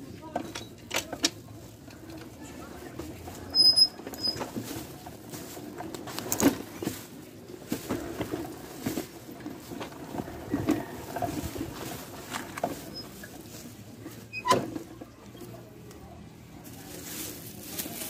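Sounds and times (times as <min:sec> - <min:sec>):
fabric rustling: 0:16.6 - 0:18.0.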